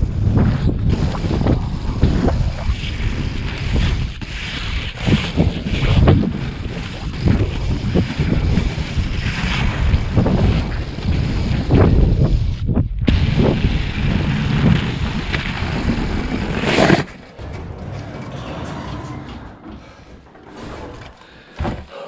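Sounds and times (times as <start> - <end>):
wind buffeting microphone: 0.0 - 16.7
skate wheels rolling on asphalt: 0.0 - 17.6
skating stride swishes: 0.2 - 11.8, 12.4 - 17.4.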